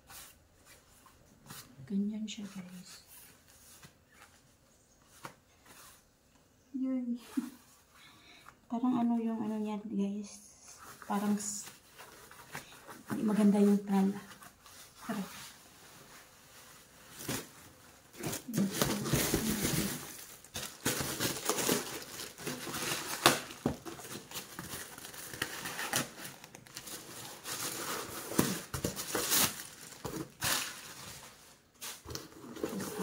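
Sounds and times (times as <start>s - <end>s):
plastic packaging crinkling: 17.1s - 33.0s.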